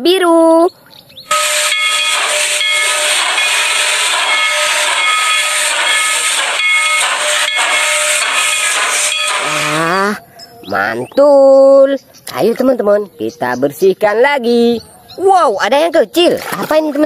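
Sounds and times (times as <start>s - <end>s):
steam whistle notes: 1.3s - 10.0s
locomotive steam hissing: 1.3s - 10.2s.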